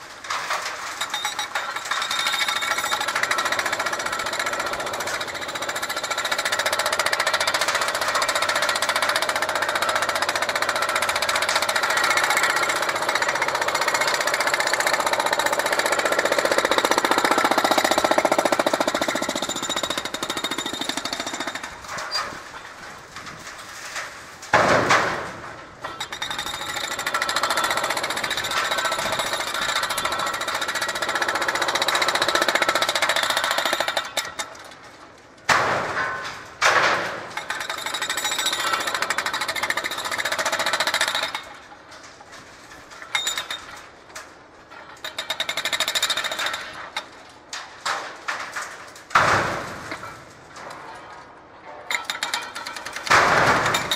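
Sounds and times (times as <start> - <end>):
hydraulic breaker hammering concrete: 0.8 - 22.4, 24.6 - 34.7, 35.5 - 41.6, 45.0 - 47.1, 51.9 - 53.9.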